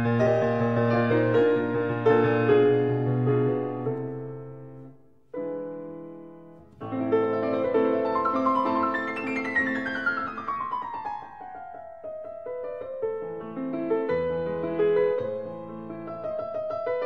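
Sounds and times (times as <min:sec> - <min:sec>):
piano chords and runs: 0:00.0 - 0:17.0.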